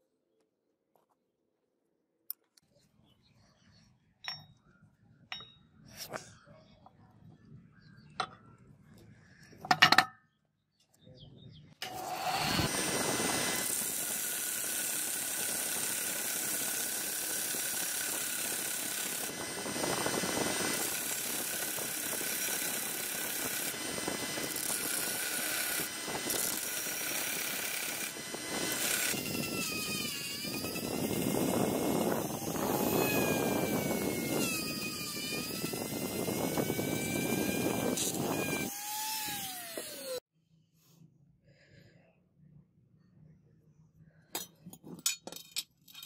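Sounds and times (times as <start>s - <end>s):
belt sander grinding metal: 11.8s - 40.2s
rotary tool whine: 11.8s - 40.3s.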